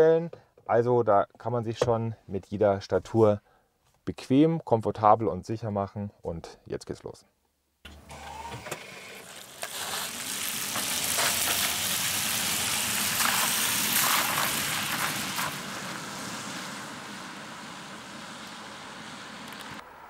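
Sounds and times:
tyres hissing on wet road: 9.0s - 20.0s.

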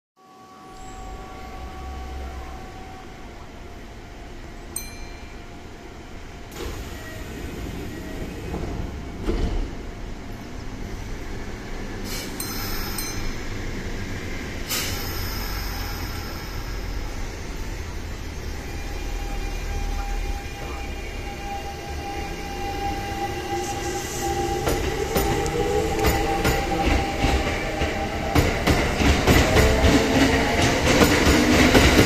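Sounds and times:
electric train humming: 0.2s - 32.0s
short hissing and clicking: 14.7s - 16.3s.

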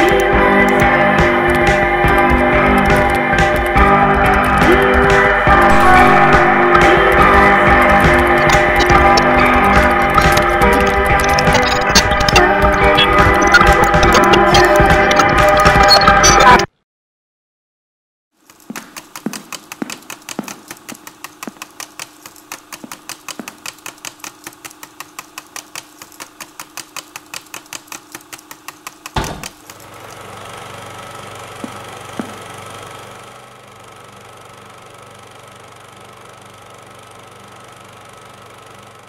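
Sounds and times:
rapid mechanical clatter: 0.0s - 5.8s, 6.6s - 16.0s, 18.4s - 30.7s.

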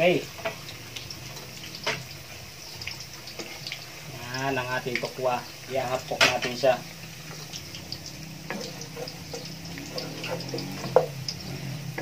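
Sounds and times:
food sizzling in oil: 0.0s - 12.0s
spatula knocking pot: 8.5s - 11.2s.

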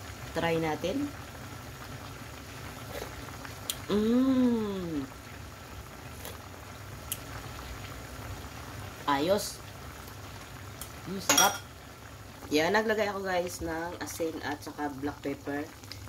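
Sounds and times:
stew simmering in a pot: 0.0s - 16.0s
person humming mmm: 2.9s - 5.1s.

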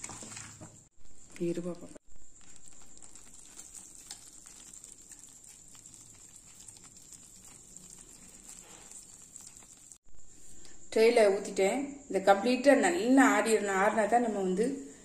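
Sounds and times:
scrapes of mixture from pan: 3.2s - 10.0s
high-pitched hiss: 7.4s - 9.4s.

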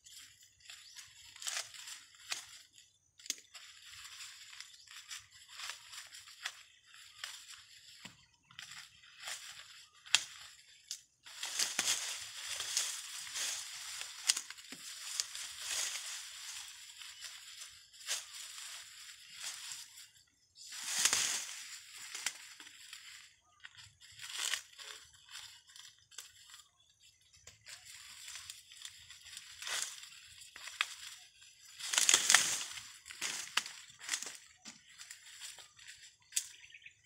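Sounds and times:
dry corn husks crackling and tearing: 0.0s - 36.8s
corn stalks snapping: 3.2s - 3.6s, 7.2s - 17.2s, 20.7s - 23.2s, 29.3s - 35.6s, 36.3s - 36.6s.

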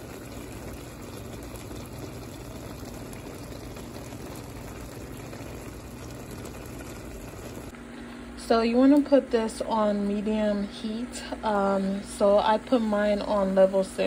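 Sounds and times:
water bubbling in a pot: 0.0s - 7.8s.

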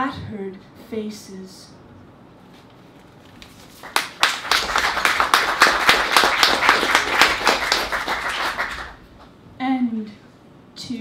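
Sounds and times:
audience applauding: 3.7s - 9.0s.

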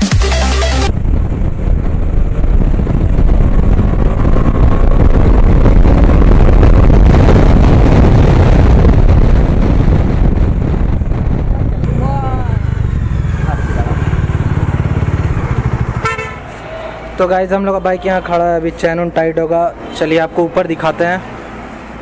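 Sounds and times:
vehicle rumble: 0.7s - 22.0s
wind rushing over microphone: 0.9s - 16.8s.

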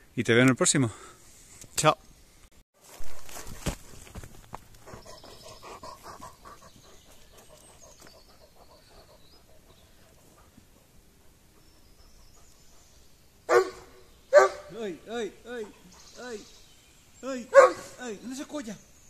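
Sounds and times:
dog panting: 4.8s - 13.1s.

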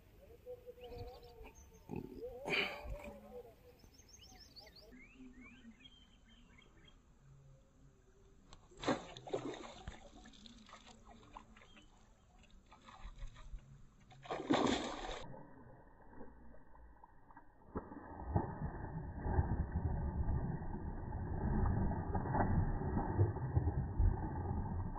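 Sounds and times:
fish splashing and thrashing in water: 8.7s - 24.9s.

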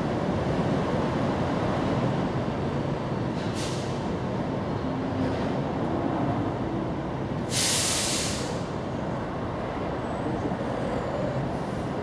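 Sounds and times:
sudden hiss: 7.5s - 8.6s.

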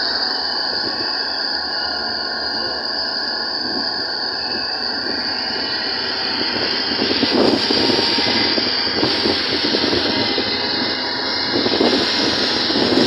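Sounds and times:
high-pitched hiss: 0.0s - 13.0s
wind rushing: 5.9s - 13.0s.

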